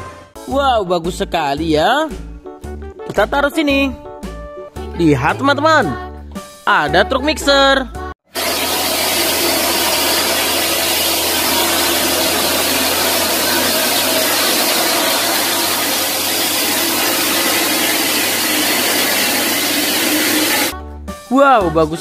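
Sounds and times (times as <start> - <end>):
concrete mixer machinery running: 8.3 - 20.7.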